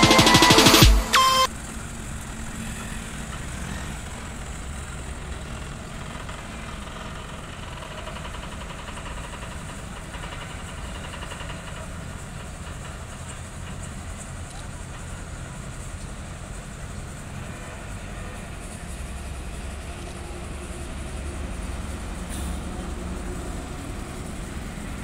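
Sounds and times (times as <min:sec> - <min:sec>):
loud background music: 0:00.0 - 0:01.5
truck diesel engine idling: 0:00.0 - 0:25.0.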